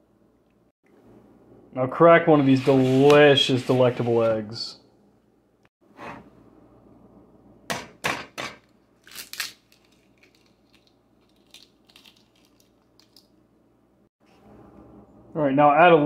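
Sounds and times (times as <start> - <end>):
egg shell crunching open: 9.0 - 13.3.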